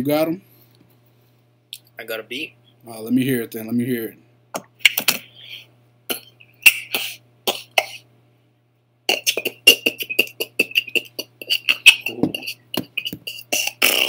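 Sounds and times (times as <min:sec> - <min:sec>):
man beatboxing: 0:09.1 - 0:14.0.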